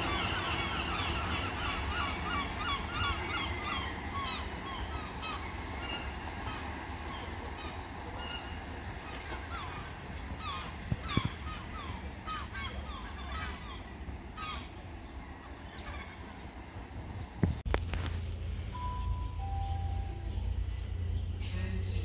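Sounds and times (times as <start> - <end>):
birds calling: 0.0 - 22.0
low rumble: 17.1 - 22.0.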